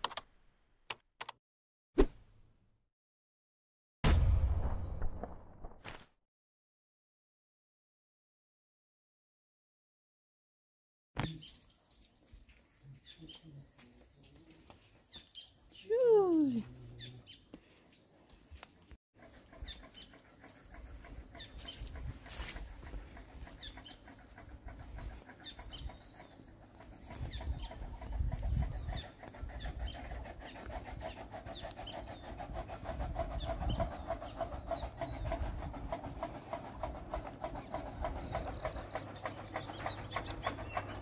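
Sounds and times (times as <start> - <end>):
small birds chirping: 11.2 - 41.0
steady chattering: 19.3 - 41.0
wind rumbling on microphone: 27.1 - 30.2, 32.6 - 36.2.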